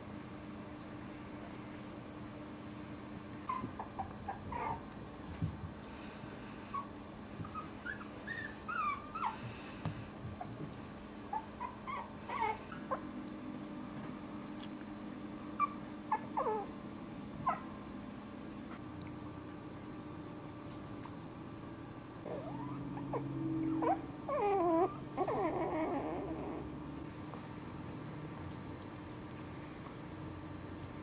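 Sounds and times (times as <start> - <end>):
puppies whimpering: 3.4 - 4.9, 6.7 - 9.6, 11.3 - 13.1, 15.6 - 16.7, 22.2 - 26.8.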